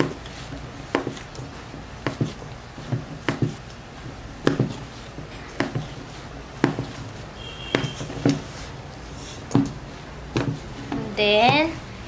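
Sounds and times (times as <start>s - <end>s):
dough knocking against bowl: 0.9s - 3.7s, 4.4s - 6.0s, 6.6s - 8.5s, 9.5s - 10.8s.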